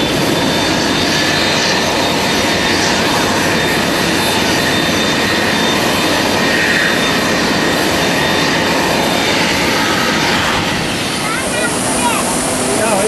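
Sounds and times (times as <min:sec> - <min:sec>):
jet engines rushing with high whine: 0:00.0 - 0:13.0.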